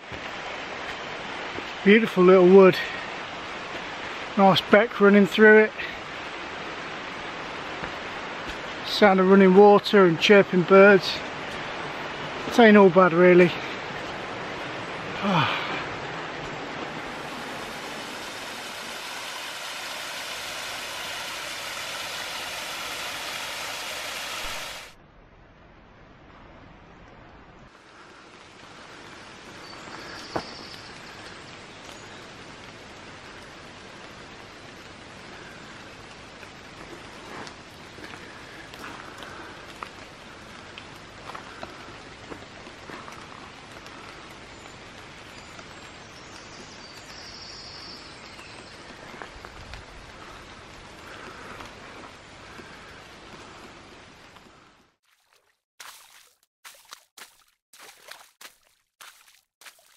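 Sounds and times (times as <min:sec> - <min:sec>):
rain and running water: 0:00.0 - 0:59.9
faint bird chirps: 0:29.6 - 0:32.3.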